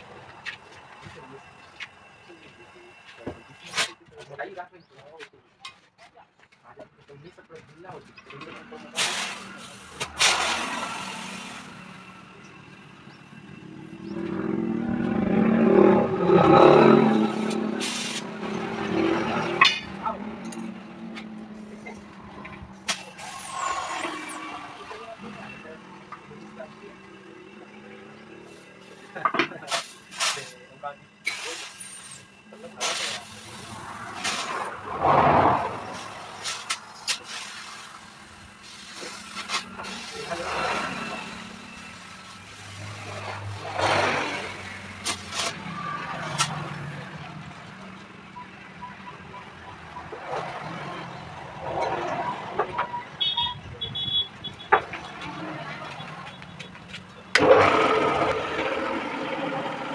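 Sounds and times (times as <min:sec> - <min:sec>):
motor vehicle engine passing: 0:08.6 - 0:29.2, 0:33.4 - 0:37.1, 0:39.5 - 0:48.2
sharp metallic clank: 0:19.4 - 0:20.8.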